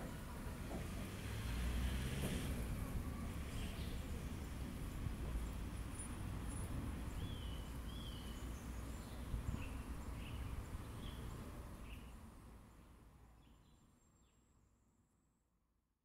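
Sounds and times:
small birds chirping: 0:06.5 - 0:14.4.

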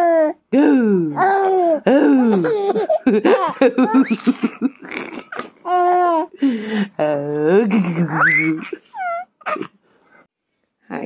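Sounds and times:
baby laughing: 0:01.2 - 0:06.4.

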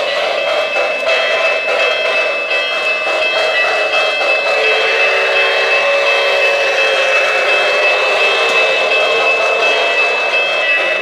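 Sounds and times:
model train wheels rolling: 0:00.0 - 0:11.0.

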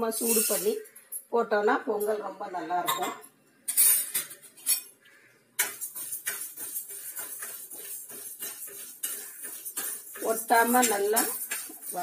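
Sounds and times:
metal spoon scraping a pan: 0:00.0 - 0:01.3, 0:03.7 - 0:12.0.

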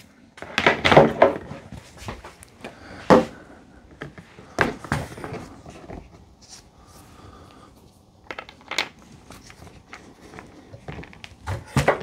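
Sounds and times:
plastic chair parts knocking: 0:00.4 - 0:02.2, 0:10.8 - 0:12.0.

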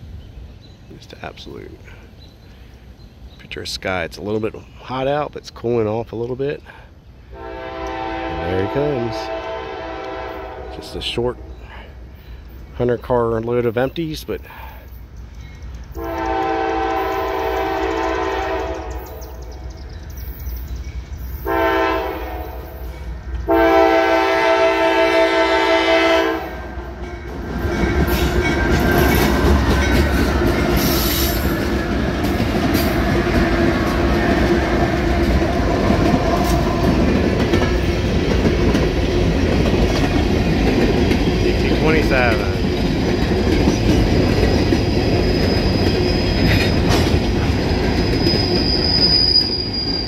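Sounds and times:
locomotive air horn blasts: 0:07.3 - 0:11.5, 0:16.0 - 0:19.2, 0:21.4 - 0:22.8, 0:23.5 - 0:26.7
wheels clattering over rail joints: 0:27.0 - 0:49.2
empty hopper cars rolling: 0:27.1 - 0:49.3.

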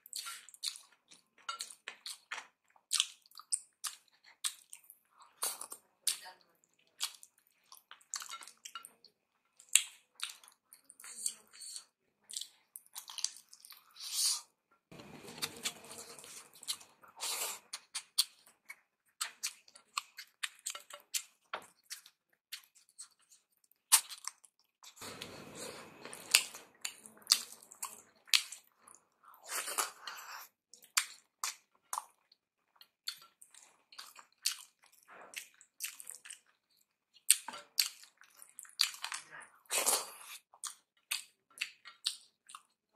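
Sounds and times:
chewing and smacking: 0:00.0 - 0:14.2, 0:15.3 - 0:42.9.

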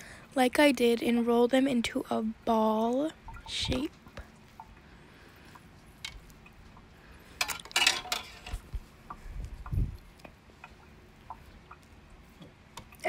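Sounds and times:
clinks and scrapes on metal pan: 0:07.4 - 0:08.6.

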